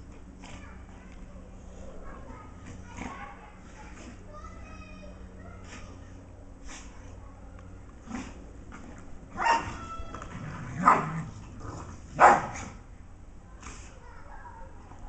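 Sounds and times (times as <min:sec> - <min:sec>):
dogs barking: 0:09.3 - 0:10.0, 0:10.6 - 0:11.4, 0:12.1 - 0:12.8.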